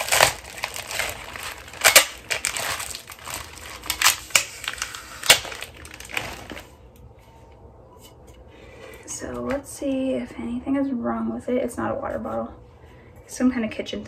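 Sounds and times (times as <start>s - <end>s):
plastic packaging crinkling: 0.0s - 7.0s.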